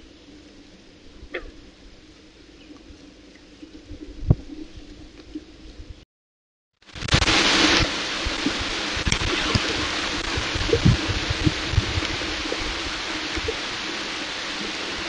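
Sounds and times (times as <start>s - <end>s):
steady rain hissing: 0.0s - 6.0s, 6.8s - 15.0s
raindrops knocking close by: 7.0s - 13.8s.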